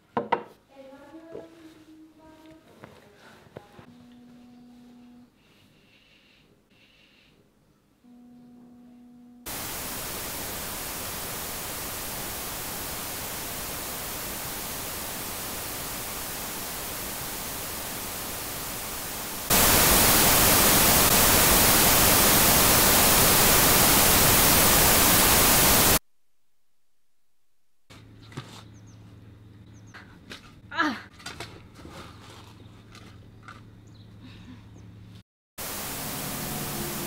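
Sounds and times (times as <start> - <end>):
faint low hum: 0.7 - 30.5
white noise static hiss: 9.4 - 27.8, 35.6 - 37.0.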